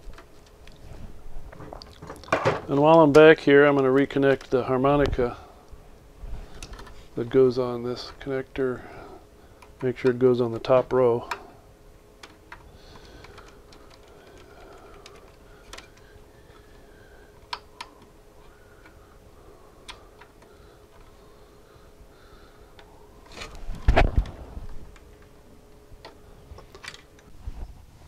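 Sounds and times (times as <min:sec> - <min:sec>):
faint steady hum: 0:00.0 - 0:28.0
connector and wires clicking: 0:06.5 - 0:07.0, 0:12.2 - 0:16.7, 0:17.4 - 0:19.0, 0:19.8 - 0:21.2.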